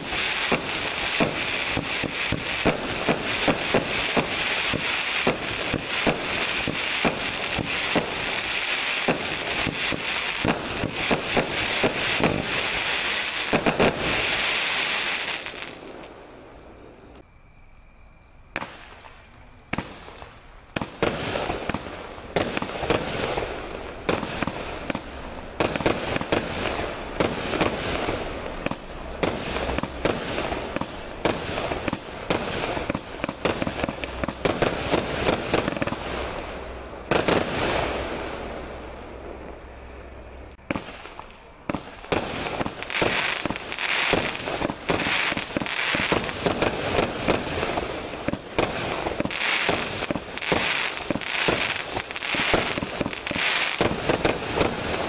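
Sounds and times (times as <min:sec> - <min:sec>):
firework crackling: 0:00.0 - 0:16.3, 0:18.6 - 0:39.8, 0:40.5 - 0:55.0
fireworks launching and bursting: 0:00.0 - 0:16.3, 0:18.5 - 0:39.7, 0:40.4 - 0:55.0.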